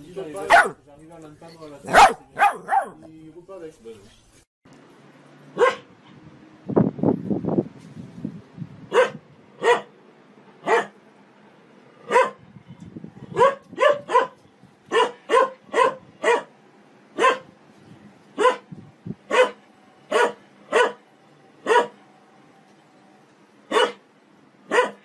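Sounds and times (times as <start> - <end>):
dog barking: 0.4 - 0.8, 1.9 - 3.0, 5.6 - 5.9, 8.9 - 9.9, 10.6 - 11.0, 12.0 - 12.4, 13.3 - 16.5, 17.2 - 17.5, 18.4 - 18.7, 19.3 - 21.0, 21.6 - 22.0, 23.7 - 24.0, 24.7 - 25.0.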